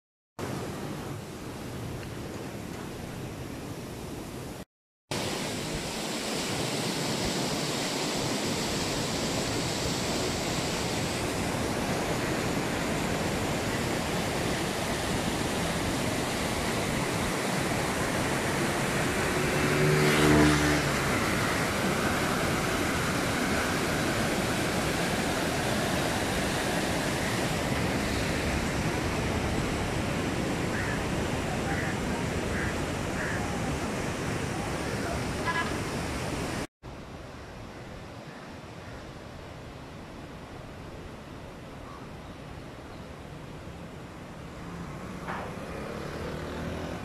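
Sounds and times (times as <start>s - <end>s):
river water roaring through gates: 5.1s - 37.1s, 38.0s - 47.0s.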